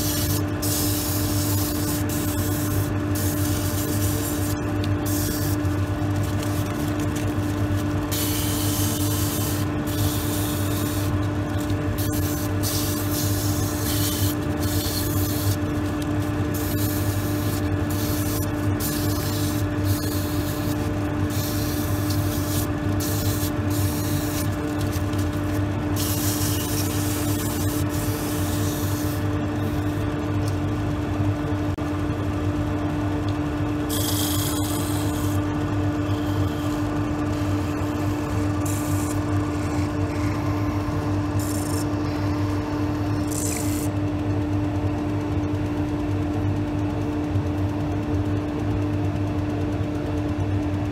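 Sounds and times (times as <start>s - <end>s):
wood lathe humming: 0.0s - 29.8s, 33.9s - 43.9s
sandpaper rubbing on wood: 8.1s - 11.1s, 12.0s - 15.6s, 16.6s - 29.2s.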